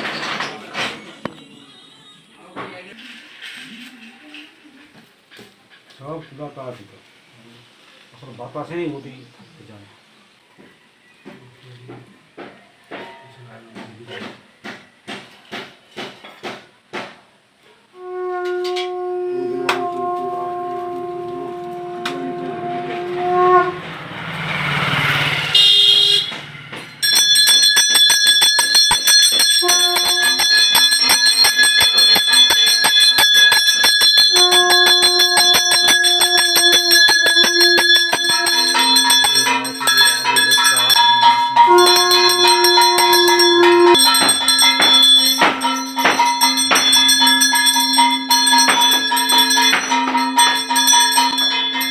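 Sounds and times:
conch shell blown: 17.9s - 23.9s, 28.8s - 51.9s
rapid bell ringing: 26.9s - 51.9s.

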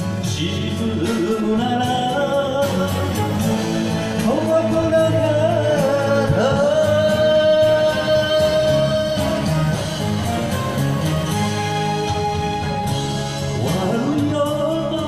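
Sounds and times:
man singing into a microphone: 0.0s - 10.3s, 13.4s - 15.0s
karaoke backing track: 0.0s - 15.0s.

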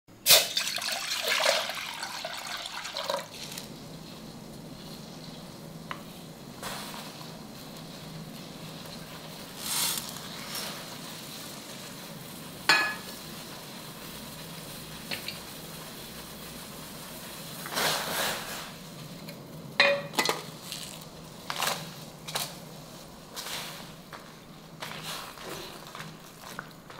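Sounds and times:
water boiling: 0.1s - 26.9s
water pouring into a pot: 0.2s - 3.9s.

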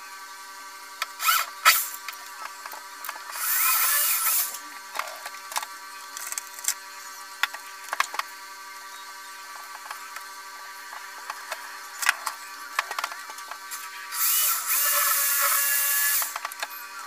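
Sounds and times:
power drill bursts: 1.1s - 2.0s, 3.3s - 4.6s, 13.9s - 16.4s.

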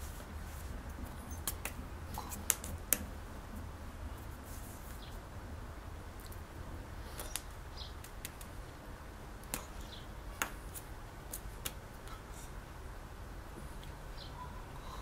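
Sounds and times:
hands tapping together: 1.4s - 3.1s, 7.2s - 8.5s.

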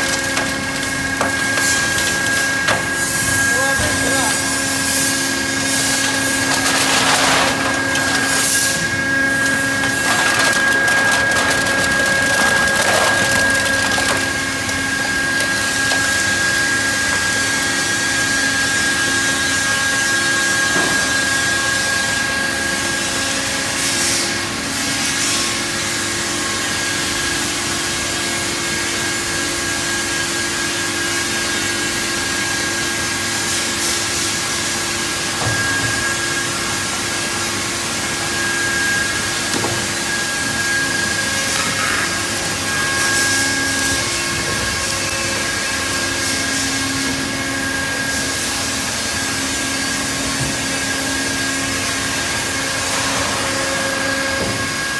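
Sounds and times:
hydraulic baler running: 0.0s - 21.4s, 29.2s - 54.9s
cans crunching: 9.4s - 16.4s.

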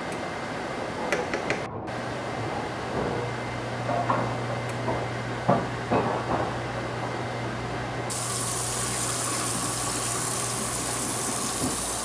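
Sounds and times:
pot of water boiling: 8.1s - 12.0s
tap running: 8.1s - 12.0s
water gushing into colander: 8.1s - 12.0s.

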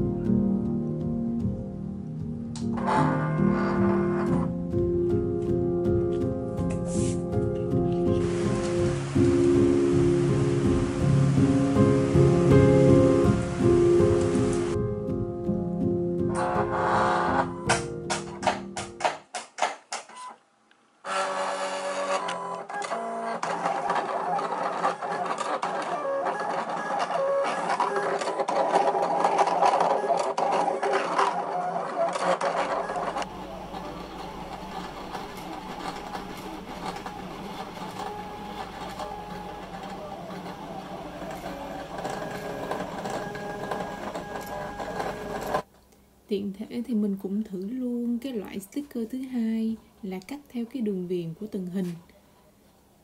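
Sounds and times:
background music: 0.0s - 19.3s, 32.7s - 45.7s
cutting machine motors whining: 21.1s - 45.6s.

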